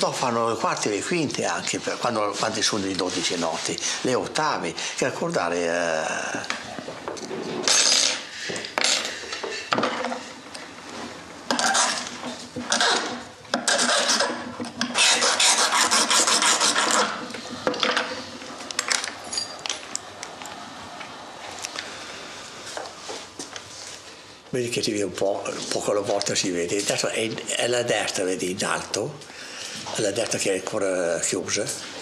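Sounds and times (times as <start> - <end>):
metal file scraping steel reed: 13.7 - 17.2.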